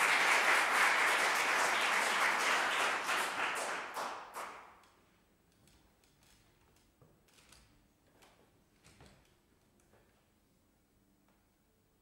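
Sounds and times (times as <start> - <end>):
audience applause: 0.0 - 4.6.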